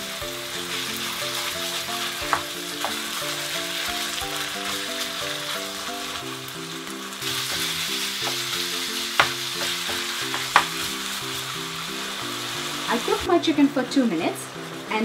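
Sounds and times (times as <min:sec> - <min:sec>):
meat sizzling in oil: 0:00.0 - 0:15.0
spatula knocking against pan: 0:07.5 - 0:08.5, 0:09.1 - 0:10.9.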